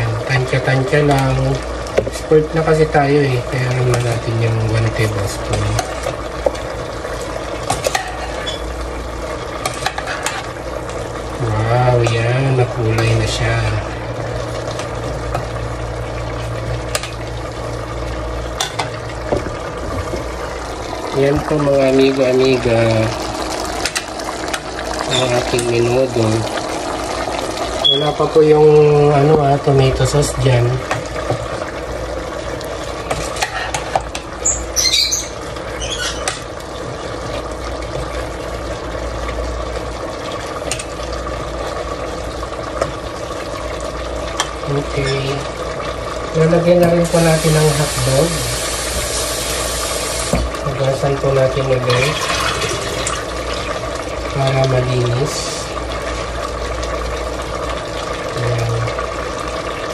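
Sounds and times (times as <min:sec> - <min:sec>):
steady hum: 0:00.0 - 0:34.4
meat sizzling: 0:00.0 - 0:59.9
high squeaks: 0:34.4 - 0:36.4.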